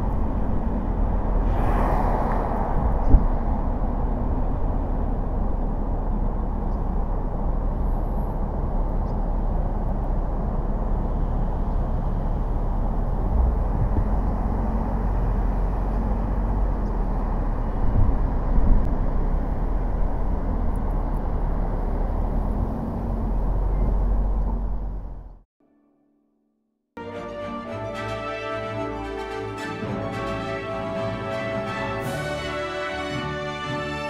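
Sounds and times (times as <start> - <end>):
road and tyre noise: 0.0 - 25.5.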